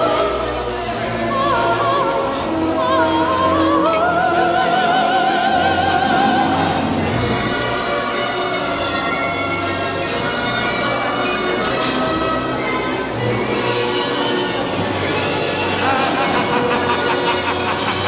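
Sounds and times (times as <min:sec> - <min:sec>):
orchestral music: 0:00.0 - 0:18.0
operatic voice singing: 0:01.0 - 0:07.1, 0:15.8 - 0:18.0.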